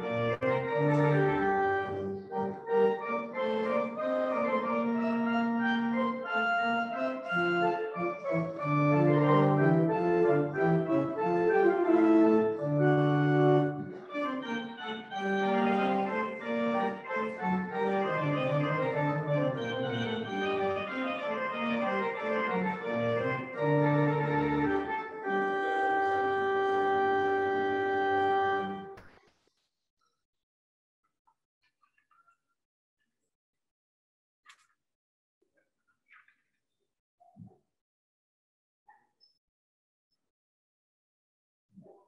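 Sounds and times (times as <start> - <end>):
pipe organ chords: 0.0 - 29.0.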